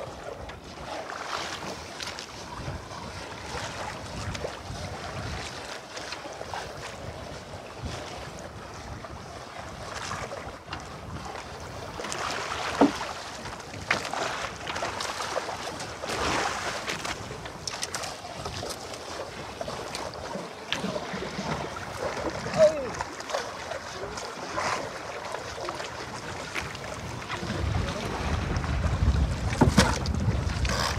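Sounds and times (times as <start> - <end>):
water lapping against boat: 0.0 - 30.9
wind on microphone: 2.4 - 5.6, 6.4 - 12.1, 25.7 - 30.9.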